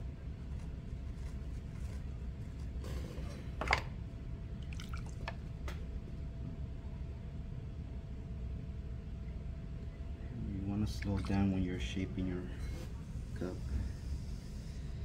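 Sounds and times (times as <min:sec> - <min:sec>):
potter's wheel humming: 0:00.0 - 0:07.2
wet squelch: 0:04.6 - 0:05.4.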